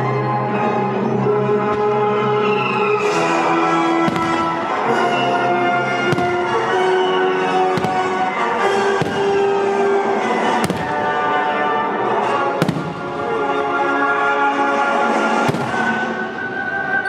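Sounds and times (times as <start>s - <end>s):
music with long held notes: 0.0s - 17.0s
firework shells bursting: 3.0s - 5.2s, 5.8s - 11.5s, 15.4s - 16.2s.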